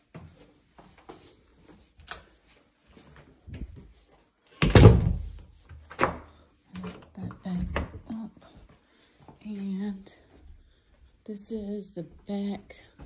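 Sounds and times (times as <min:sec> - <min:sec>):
heavy door thud: 0:04.6 - 0:05.4.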